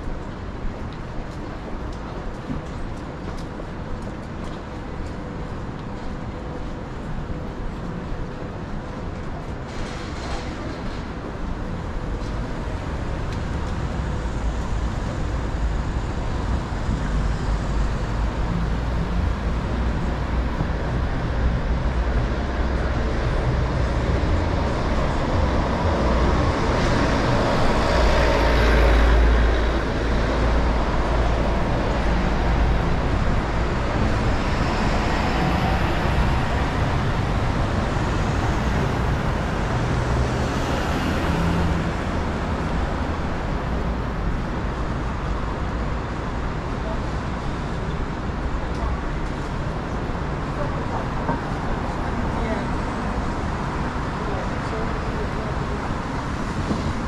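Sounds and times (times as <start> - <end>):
traffic hum: 0.0 - 57.0
loud vehicle passing: 23.4 - 43.4.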